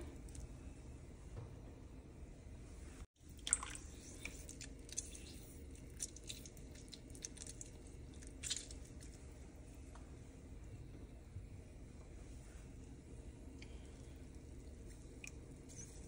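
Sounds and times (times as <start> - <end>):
juice dripping into bubbling butter: 3.2 - 9.7, 13.4 - 16.0.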